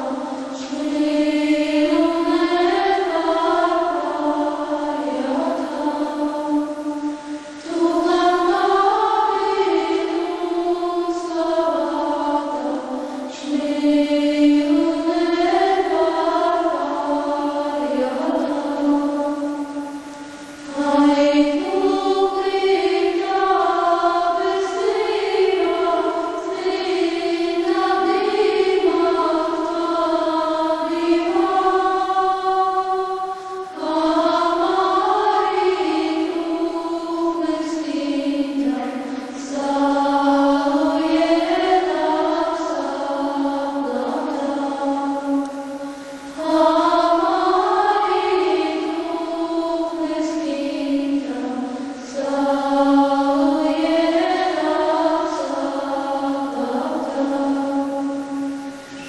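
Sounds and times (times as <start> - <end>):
choir singing slow chant: 0.0 - 59.0.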